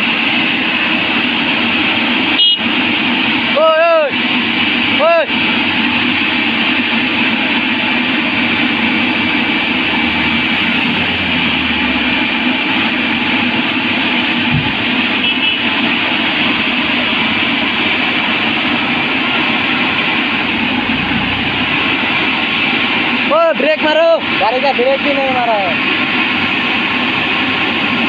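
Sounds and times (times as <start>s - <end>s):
excavator engine and hydraulics: 0.0s - 28.0s
low thump: 14.5s - 15.0s.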